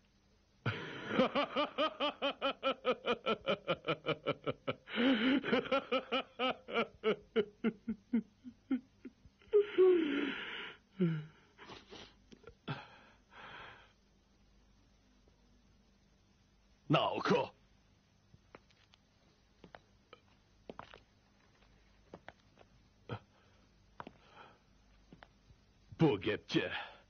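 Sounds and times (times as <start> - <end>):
person sobbing: 0.7 - 13.8.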